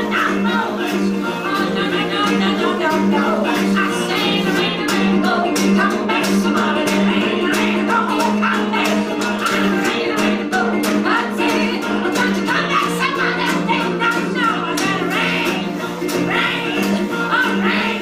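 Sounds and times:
man singing: 0.0 - 10.8
strummed acoustic guitar: 0.0 - 18.0
woman singing: 0.0 - 18.0.

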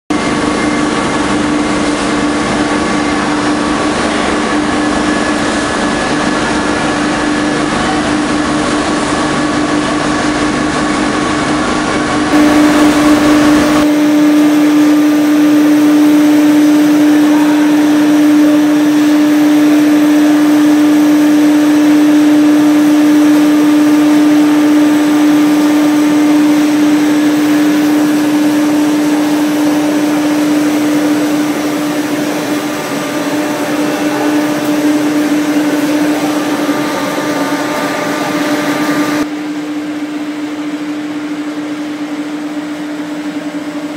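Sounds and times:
machinery hum and whir: 0.1 - 43.9
motors and rollers whirring: 0.2 - 43.9.

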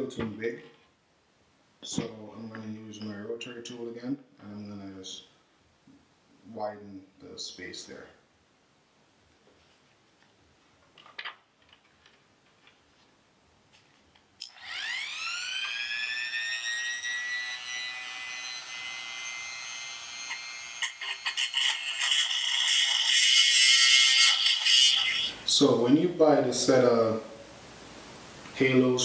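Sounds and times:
rotary tool motor whining: 14.5 - 25.3.

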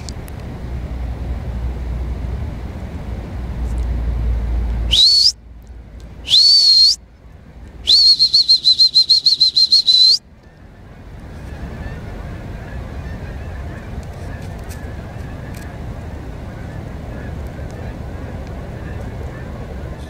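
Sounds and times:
shrill whistle blasts: 4.9 - 5.4, 6.2 - 7.0, 7.8 - 10.2.

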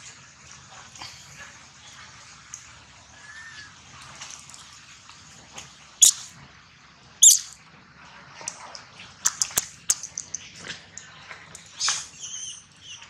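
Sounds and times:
animal squeaks and chirps: 6.0 - 6.3, 7.2 - 7.6, 11.8 - 13.0.

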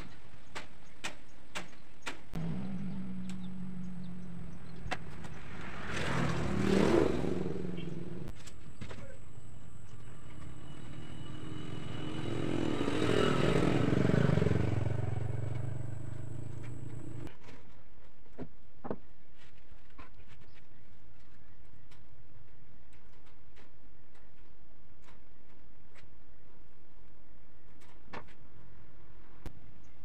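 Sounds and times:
low hum: 2.4 - 8.3, 9.3 - 17.3
vehicle engine passing: 2.4 - 8.3, 10.0 - 17.3.

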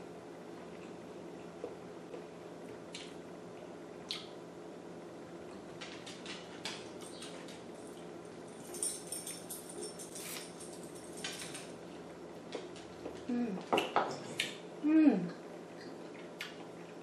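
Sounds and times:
falling hum of voice: 14.8 - 15.4.

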